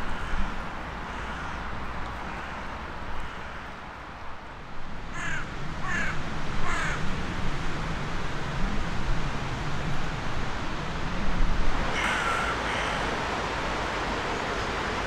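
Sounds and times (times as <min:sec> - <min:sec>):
crow cawing: 0:00.0 - 0:03.8, 0:05.1 - 0:07.0, 0:11.9 - 0:13.1
steady background noise: 0:00.0 - 0:15.0.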